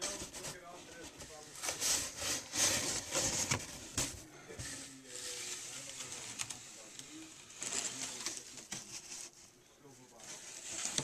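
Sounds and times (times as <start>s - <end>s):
cardboard scraping and rustling: 0.0s - 9.4s, 10.2s - 11.0s.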